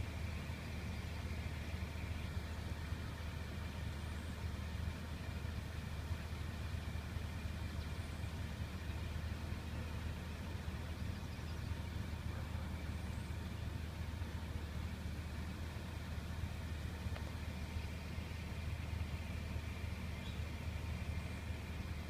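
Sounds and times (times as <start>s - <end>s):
engine idling hum: 0.0s - 22.0s.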